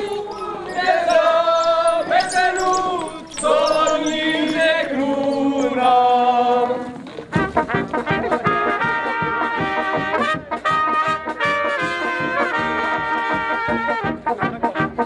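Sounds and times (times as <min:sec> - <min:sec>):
voices singing a folk song: 0:00.0 - 0:07.5.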